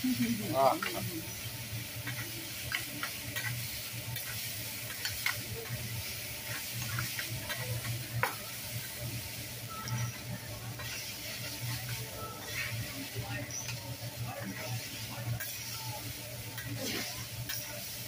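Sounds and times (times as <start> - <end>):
rice sizzling on a griddle: 0.0 - 18.0
metal clicks on griddle: 4.2 - 5.8, 6.5 - 8.4.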